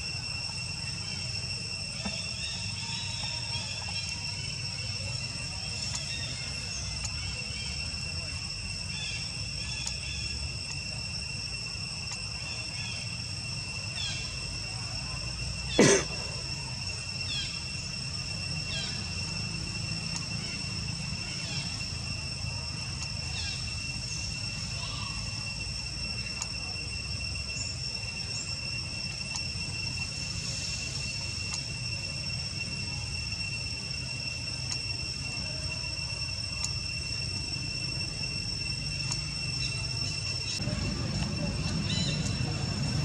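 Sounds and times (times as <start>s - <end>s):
high insect drone: 0.0s - 43.0s
low rumble: 40.5s - 43.0s.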